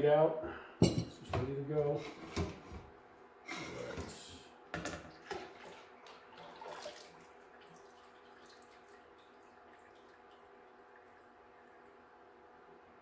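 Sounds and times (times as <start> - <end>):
liquid pouring into metal pot: 5.1 - 11.9.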